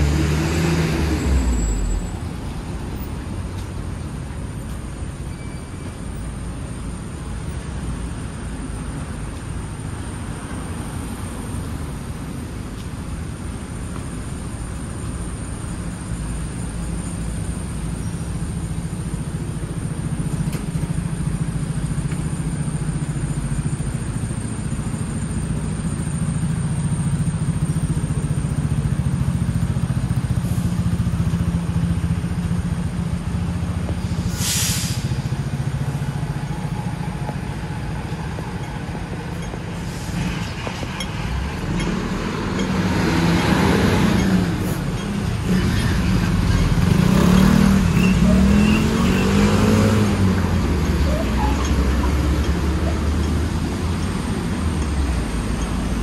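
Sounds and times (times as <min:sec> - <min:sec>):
tram rumbling on rails: 0:00.0 - 0:56.0
short hiss: 0:34.0 - 0:35.4.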